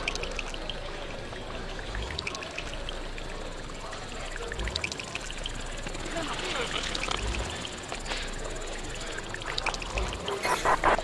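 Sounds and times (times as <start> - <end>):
dense noisy texture: 6.0 - 11.0.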